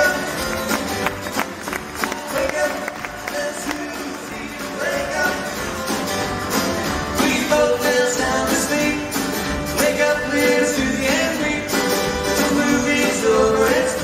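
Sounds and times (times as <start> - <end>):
acoustic guitars strumming chords: 0.0 - 14.0.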